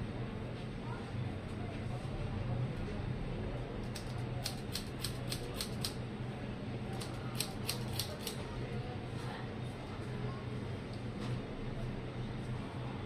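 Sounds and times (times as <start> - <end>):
scissors snipping hair: 3.8 - 6.0, 7.0 - 8.4.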